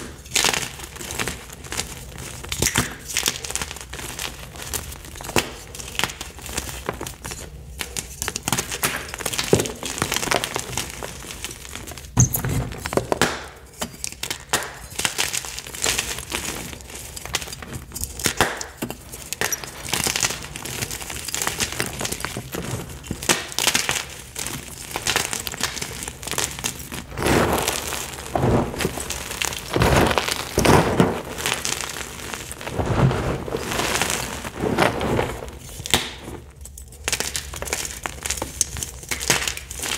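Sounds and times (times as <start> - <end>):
chalk crunching by hand: 25.6 - 36.4.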